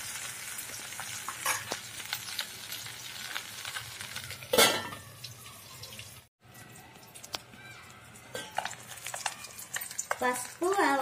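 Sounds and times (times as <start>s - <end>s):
frying sizzle in a pot: 0.0s - 11.0s
metal lid clattering on pot: 4.5s - 5.0s.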